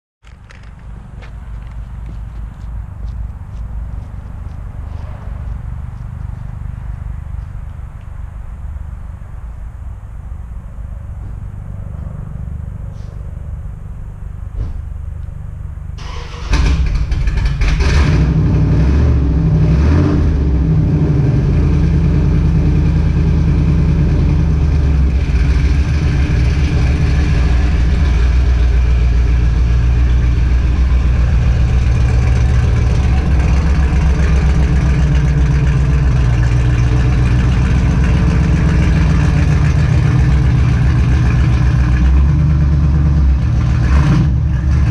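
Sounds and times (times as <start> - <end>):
engine starting and idling: 15.9 - 19.4, 22.0 - 44.9.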